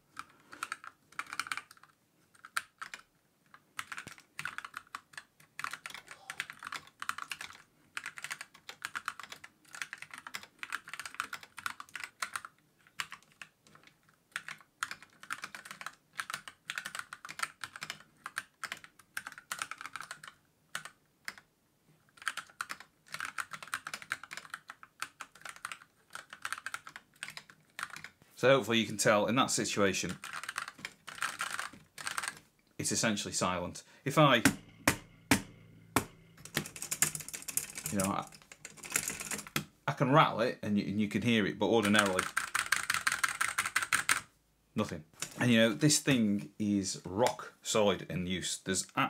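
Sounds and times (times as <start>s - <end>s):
mechanical keyboard typing: 0.2s - 21.4s, 22.1s - 28.2s, 30.0s - 32.4s, 34.3s - 39.7s, 41.8s - 44.3s.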